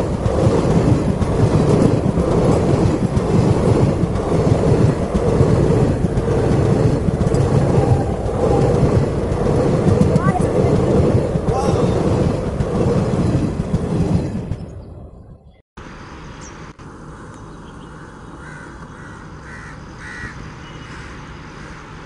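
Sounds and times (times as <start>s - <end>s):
train wheels rumbling on rails: 0.0s - 15.2s.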